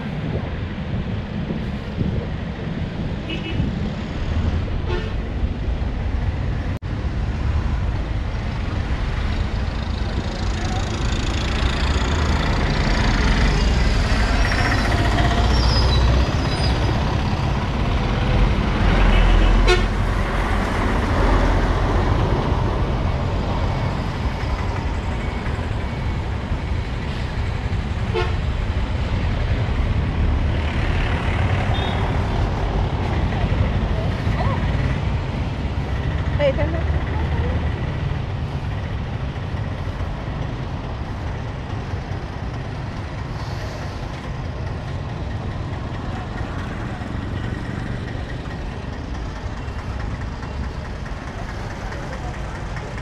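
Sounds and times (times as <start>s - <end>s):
traffic engines rumbling: 0.0s - 53.0s
vehicle horns tooting: 3.2s - 3.7s, 19.0s - 20.0s, 28.1s - 28.5s, 31.7s - 32.2s.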